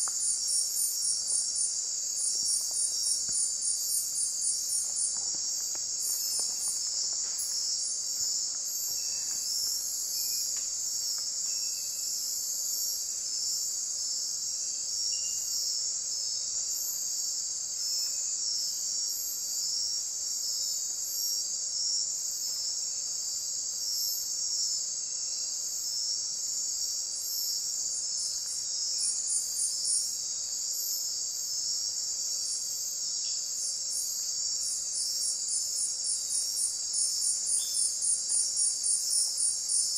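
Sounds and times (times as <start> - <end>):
pulsing insect chirp: 0.0 - 39.9
high insect trilling: 26.2 - 39.9.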